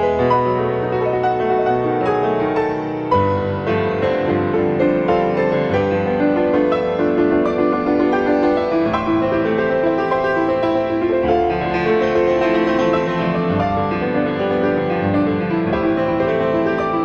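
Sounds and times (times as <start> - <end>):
gentle piano music: 0.0 - 17.0.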